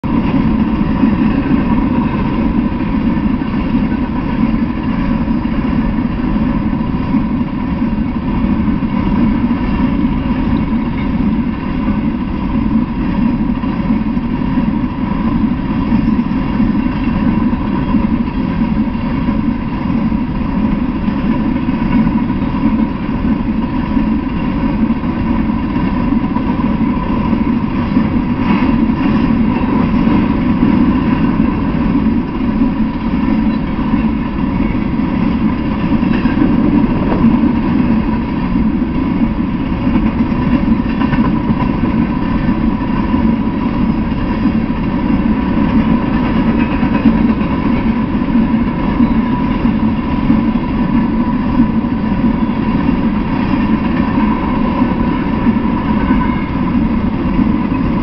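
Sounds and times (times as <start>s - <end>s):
train wheels on rail: 0.0s - 58.0s.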